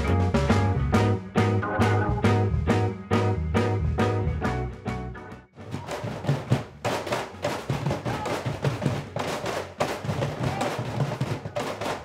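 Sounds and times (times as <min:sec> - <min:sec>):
cajon drums slapped: 0:05.6 - 0:12.0.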